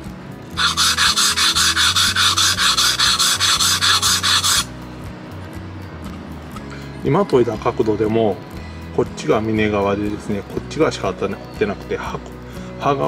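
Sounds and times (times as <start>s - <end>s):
blade scraping on wet whetstone: 0.6s - 4.7s.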